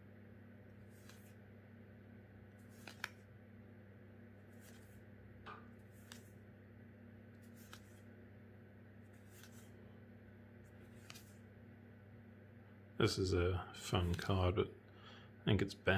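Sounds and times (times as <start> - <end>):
faint electrical hum: 0.0 - 15.9
cards clicking and sliding: 0.7 - 1.4, 2.5 - 3.3, 4.4 - 5.0, 5.6 - 6.4, 7.3 - 8.1, 9.1 - 9.8, 10.7 - 11.4, 14.0 - 14.4.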